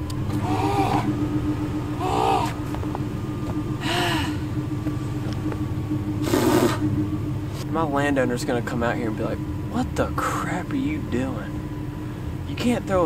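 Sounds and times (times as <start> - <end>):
pickup truck engine idling: 0.0 - 13.0
person gasping and panting: 3.8 - 4.4.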